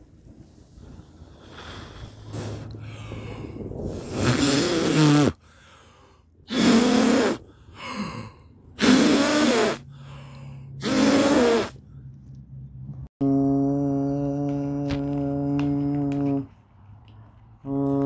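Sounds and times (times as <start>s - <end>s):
person gasping breathily: 1.3s - 4.2s, 5.4s - 6.3s, 7.5s - 8.6s.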